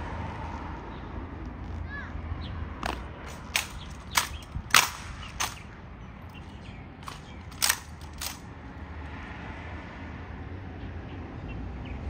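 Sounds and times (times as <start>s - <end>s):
sharp hard cracks: 2.8s - 6.4s, 7.0s - 8.5s.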